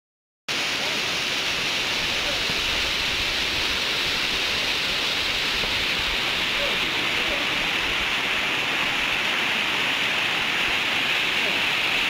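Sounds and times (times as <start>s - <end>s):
waterfall rushing: 0.5s - 12.0s.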